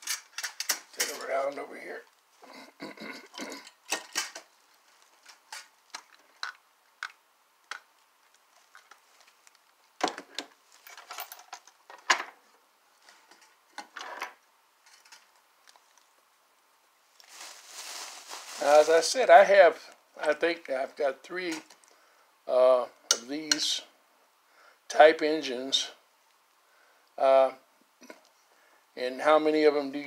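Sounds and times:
bubble wrap rustling: 17.0s - 19.3s.

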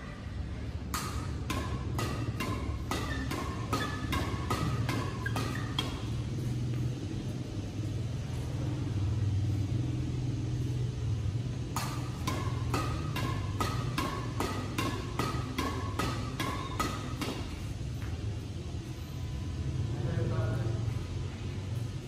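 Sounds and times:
steady low hum: 0.0s - 22.0s
badminton racket hitting shuttlecock: 0.9s - 6.6s, 11.7s - 17.8s.

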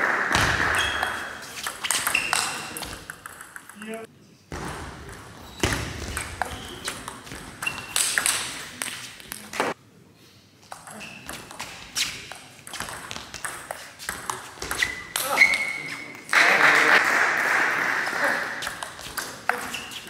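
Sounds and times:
ball bouncing on table: 0.3s - 9.8s, 12.7s - 15.3s
ping pong ball clicking off bats: 1.0s - 4.1s, 12.3s - 15.3s.

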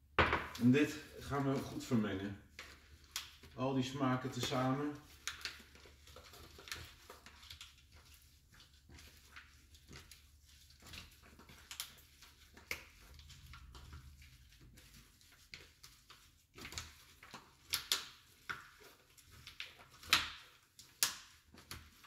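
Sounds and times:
hands kneading wet minced meat: 0.5s - 22.0s.

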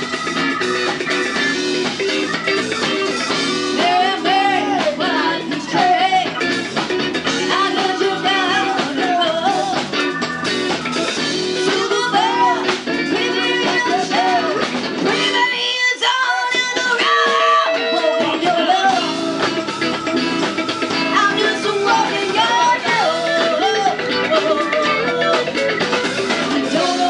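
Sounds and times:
rhythm and blues band playing: 0.0s - 27.0s
woman singing: 3.7s - 6.5s, 7.3s - 9.9s, 11.4s - 19.2s, 20.9s - 27.0s.

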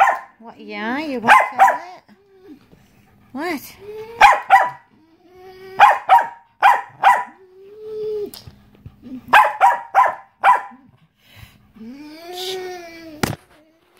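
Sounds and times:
small dog barking: 0.0s - 0.4s, 1.3s - 2.0s, 4.2s - 4.9s, 5.8s - 7.4s, 9.3s - 10.9s
dog whining: 1.6s - 10.9s.

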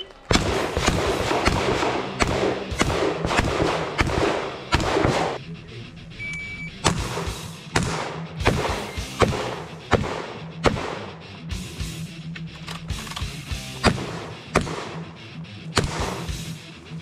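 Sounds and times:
background music: 0.0s - 17.0s
shotgun shots: 0.3s - 5.4s, 6.8s - 11.2s, 13.8s - 15.1s, 15.8s - 16.6s
shot timer beep: 6.2s - 6.8s.

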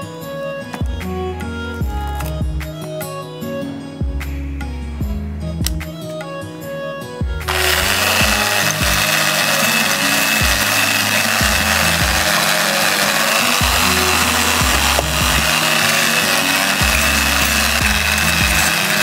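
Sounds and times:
background music: 0.0s - 19.0s
electric drill running: 7.5s - 19.0s
grit scouring metal: 7.5s - 19.0s.

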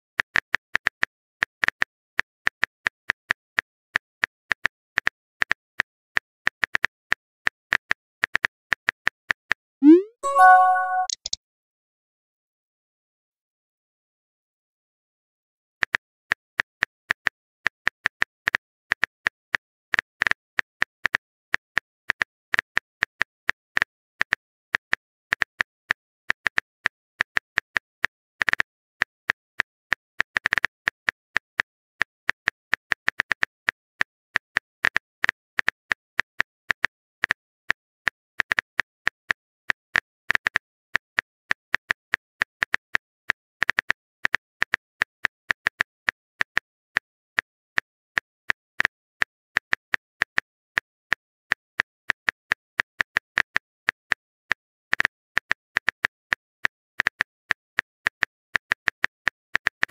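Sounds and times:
phone keyboard typing taps: 9.8s - 11.4s.

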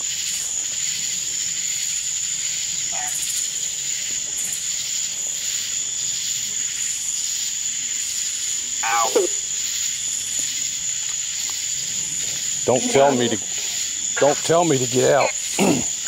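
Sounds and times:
night insects trilling: 0.0s - 16.0s
radio sweep voice-like sound: 8.8s - 9.4s, 12.7s - 13.5s, 14.2s - 15.4s.

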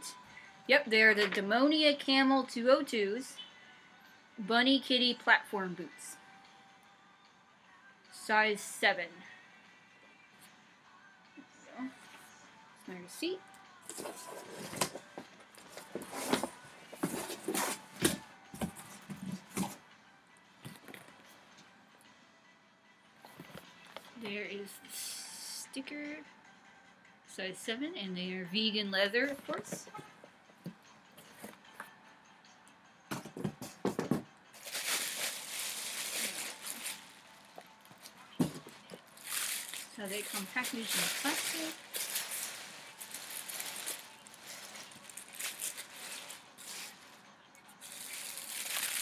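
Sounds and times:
cardboard rustles and scrapes: 13.9s - 15.0s, 15.6s - 19.8s
plastic bag crinkling: 34.6s - 37.6s, 39.1s - 47.2s, 47.8s - 49.0s.

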